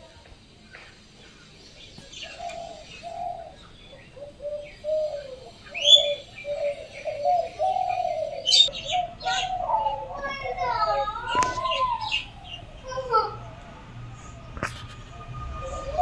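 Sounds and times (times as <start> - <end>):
small birds chirping: 0.2 - 16.0
dove cooing: 2.0 - 13.5.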